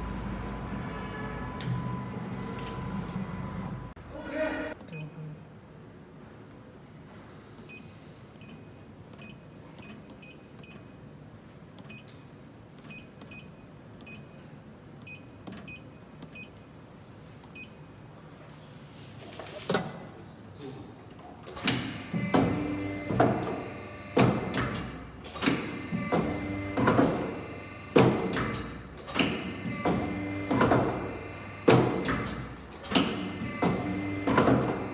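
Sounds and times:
touchscreen beeps: 0:04.9 - 0:05.4.

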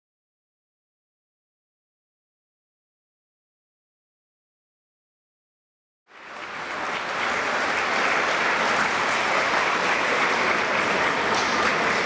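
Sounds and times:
audience applause: 0:06.1 - 0:12.0.

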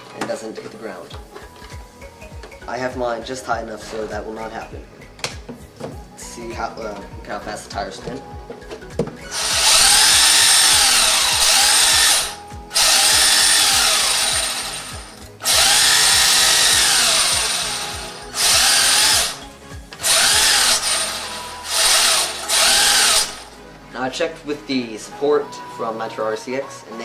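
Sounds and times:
electric motor whining: 0:09.3 - 0:19.4, 0:20.0 - 0:23.5.

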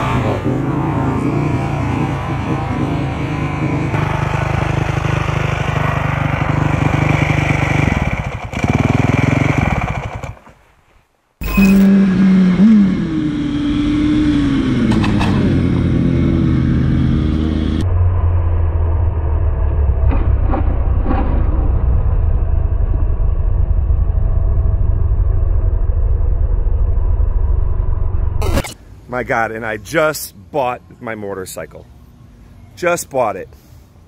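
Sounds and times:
motorcycle engine revving: 0:00.0 - 0:10.4, 0:11.4 - 0:23.8
motorcycle engine rumbling: 0:00.0 - 0:10.5, 0:11.4 - 0:28.9.

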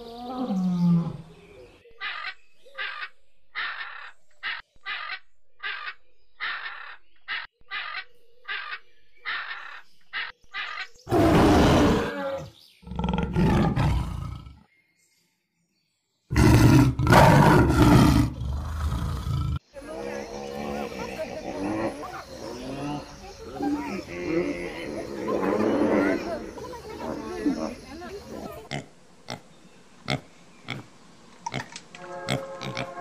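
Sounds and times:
harsh deep animal calls: 0:09.3 - 0:14.7, 0:16.3 - 0:29.5.

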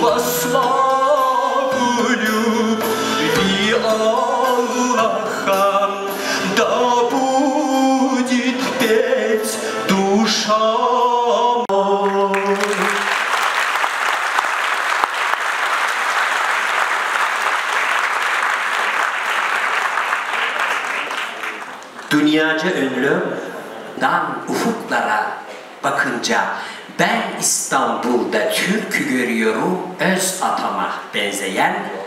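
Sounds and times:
man singing into microphone: 0:00.0 - 0:13.1
audience applause: 0:12.0 - 0:22.2.

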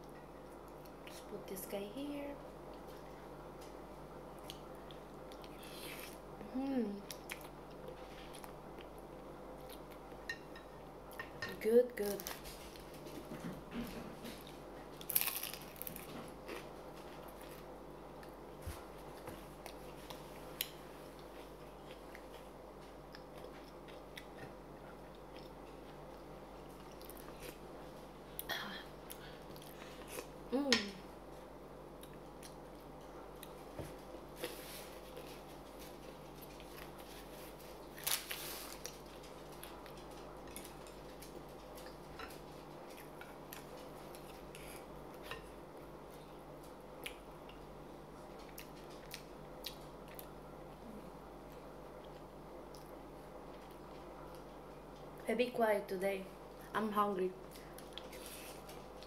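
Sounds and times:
crisp bites and chewing: 0:15.0 - 0:16.2.

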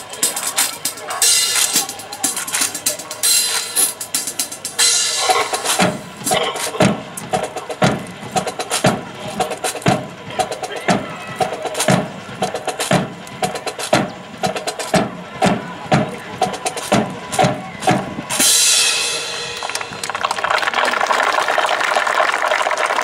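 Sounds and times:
snare drum roll: 0:01.4 - 0:20.5
cymbal crash: 0:04.7 - 0:07.1, 0:18.4 - 0:20.1
bass drum strikes: 0:04.9 - 0:18.5.

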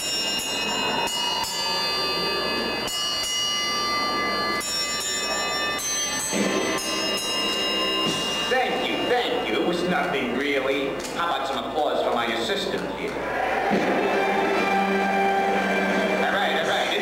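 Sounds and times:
hanging bells struck in a tune: 0:00.0 - 0:10.4.

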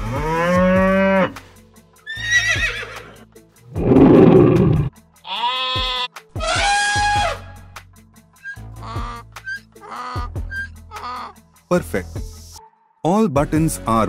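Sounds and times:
background music: 0:00.0 - 0:14.0
recorded animal calls: 0:08.4 - 0:11.4.

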